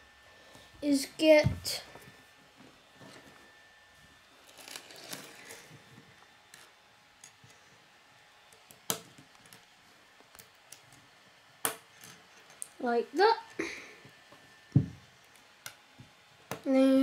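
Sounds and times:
plastic pieces rustling and clicking: 4.4 - 5.7.

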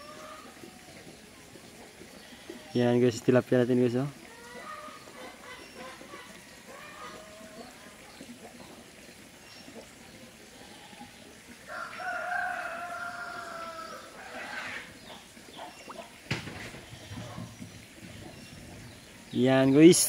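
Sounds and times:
rooster crowing: 11.7 - 14.0.

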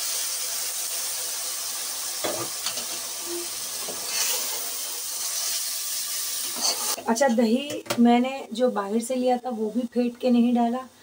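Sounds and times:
chicken sizzling in a pot: 0.0 - 7.8.

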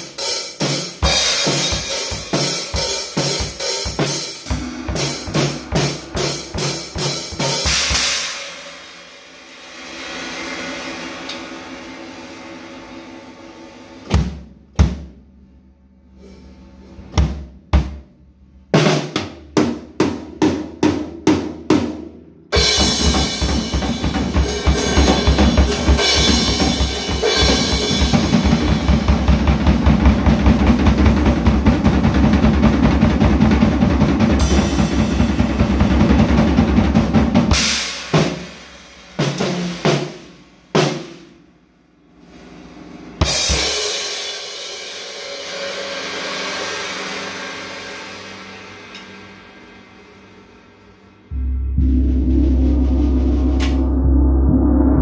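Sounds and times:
drum kit with cymbals: 0.0 - 15.4, 16.0 - 54.2.

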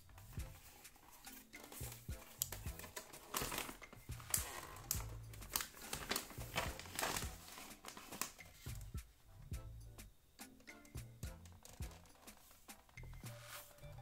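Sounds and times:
background music with bass line: 0.0 - 7.6, 8.3 - 14.0
plastic game case clicking and knocking: 10.6 - 13.2.

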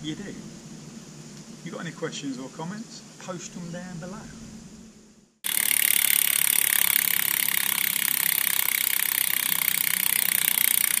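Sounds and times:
mechanical whir of rapid ticking: 5.4 - 11.0.

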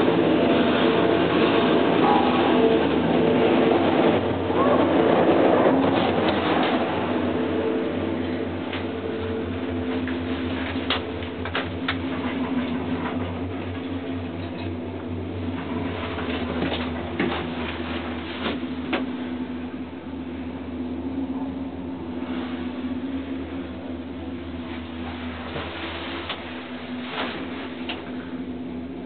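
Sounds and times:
gondola cabin hum and rumble: 0.0 - 29.0.

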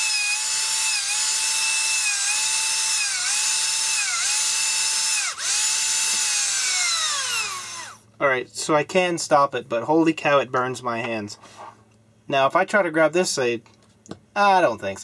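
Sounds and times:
electric motor high whine: 0.0 - 8.0.

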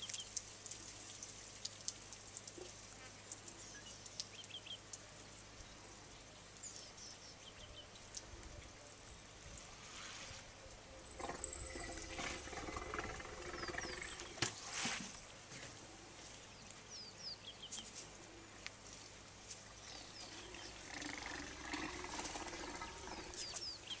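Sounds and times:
elephant rumbling low: 11.0 - 14.6, 20.5 - 23.6.

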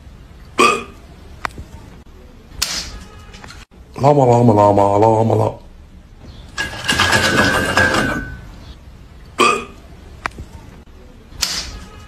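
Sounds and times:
sharp click: 11.4 - 11.8.

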